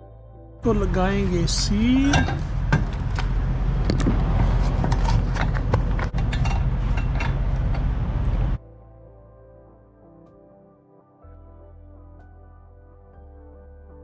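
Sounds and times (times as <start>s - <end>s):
low machine hum: 0.7s - 8.6s
metal latch clicking and clanking: 2.0s - 4.1s, 4.8s - 7.9s.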